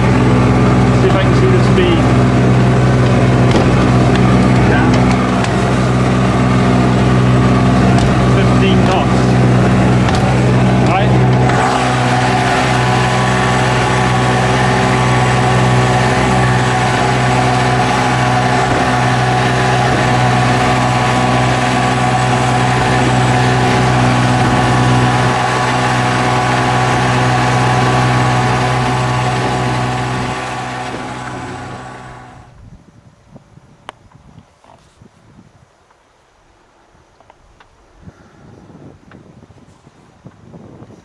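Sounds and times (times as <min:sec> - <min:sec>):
outboard motor running: 0:00.0 - 0:32.5.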